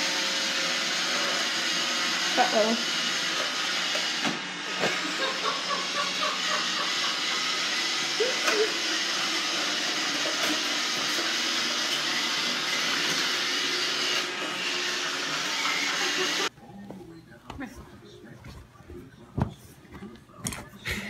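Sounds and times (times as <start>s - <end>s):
robot vacuum cleaner running: 0.0s - 16.5s.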